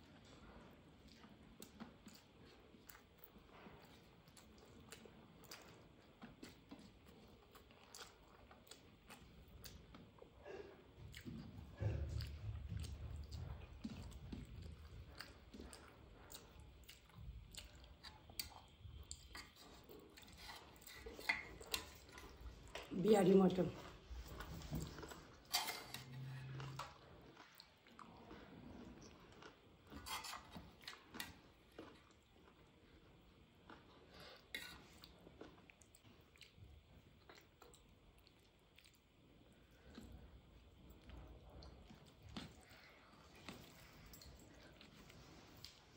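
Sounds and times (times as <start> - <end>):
chewing food: 0.0 - 45.9
wet squishes of food mixed by hand: 26.4 - 45.9.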